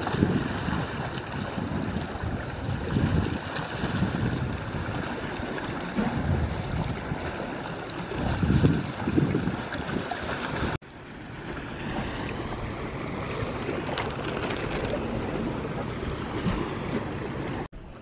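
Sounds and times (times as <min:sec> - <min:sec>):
waves washing against rocky shore: 0:00.0 - 0:10.8
wind on microphone: 0:00.0 - 0:10.8.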